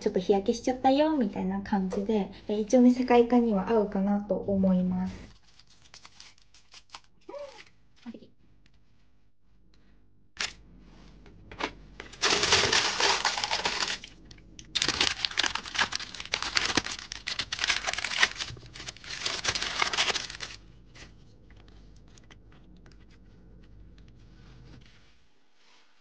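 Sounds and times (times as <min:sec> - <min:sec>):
baking paper crinkling: 0:05.3 - 0:07.7, 0:12.0 - 0:21.1.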